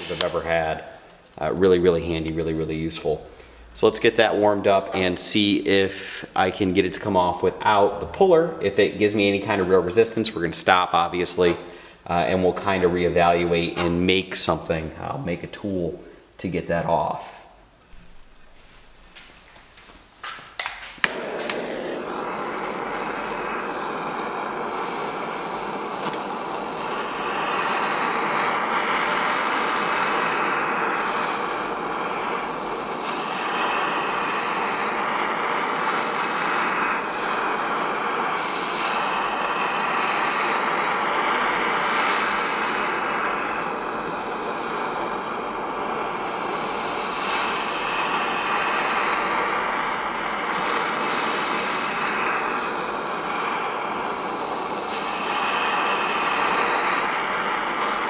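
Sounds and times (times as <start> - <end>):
torch igniter clicks: 0.0 - 1.6, 20.2 - 58.0
torch flame hissing: 0.0 - 58.0.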